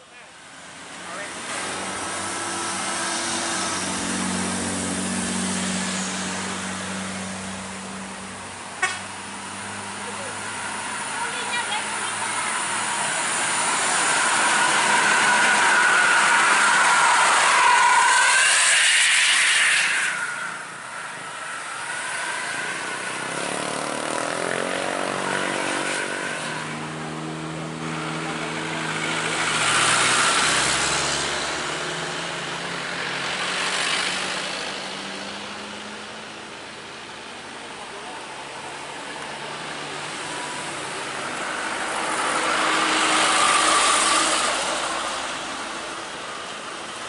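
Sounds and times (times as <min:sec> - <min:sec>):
rush of traffic noise: 0:00.0 - 0:47.0
vehicle engine approaching: 0:00.0 - 0:47.0
truck driving past: 0:00.5 - 0:47.0.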